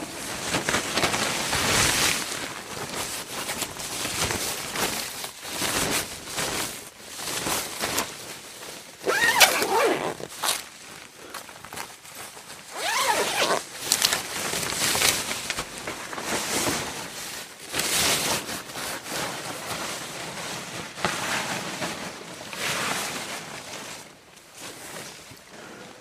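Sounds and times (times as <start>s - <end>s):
suit fabric rustling: 0.0s - 11.1s, 11.7s - 17.2s.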